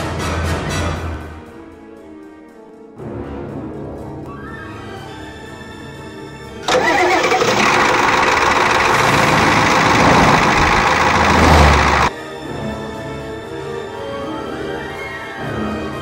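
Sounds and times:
truck engine running loudly: 0:06.7 - 0:12.1.

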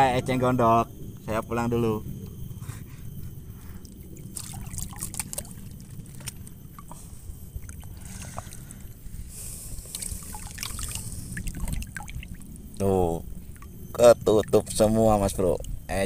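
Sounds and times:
steady low rumble: 0:00.0 - 0:16.0
leaves and stems rustling: 0:03.6 - 0:07.2
water sloshing: 0:03.8 - 0:08.9, 0:09.8 - 0:12.8.

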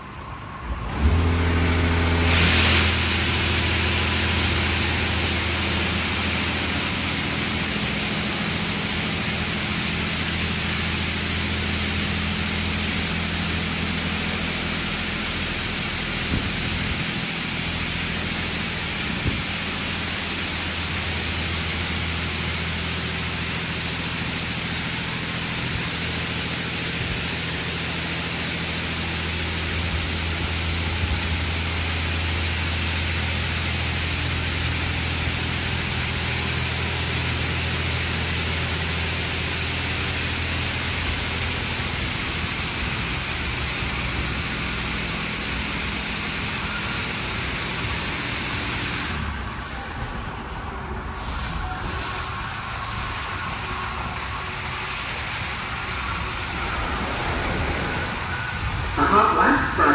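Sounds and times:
water spraying onto car: 0:01.2 - 0:50.2
steady low hum: 0:28.2 - 0:59.9.

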